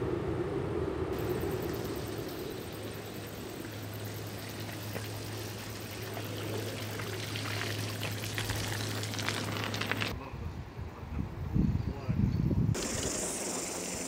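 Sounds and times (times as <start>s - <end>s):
water pouring and trickling: 1.2s - 10.1s, 12.8s - 14.0s
splashy crackles: 3.8s - 10.1s.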